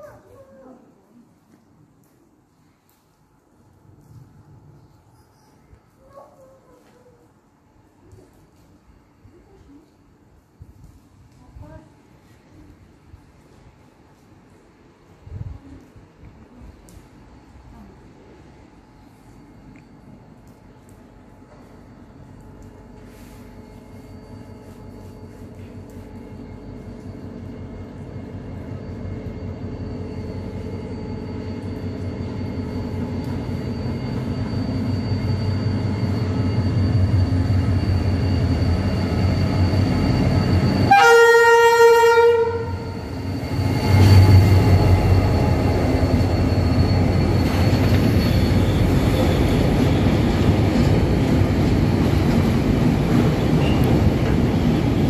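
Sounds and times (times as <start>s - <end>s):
diesel locomotive engine drone: 12.0s - 55.0s
train horn blast: 40.9s - 43.0s.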